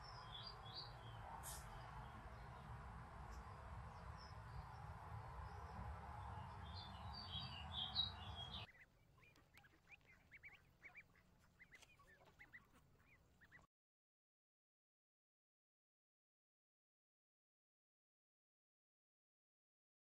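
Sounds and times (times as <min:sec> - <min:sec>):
bird chirps: 0:05.5 - 0:13.7
ducklings peeping: 0:06.5 - 0:13.7.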